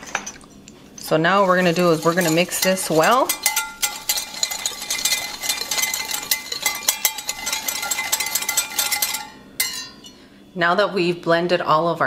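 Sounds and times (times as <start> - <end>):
whisk clinking against glass: 1.0 - 10.2.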